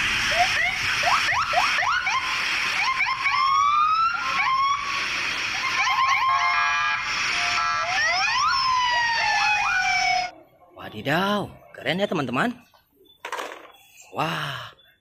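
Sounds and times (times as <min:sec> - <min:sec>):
police sirens wailing: 0:00.1 - 0:10.4.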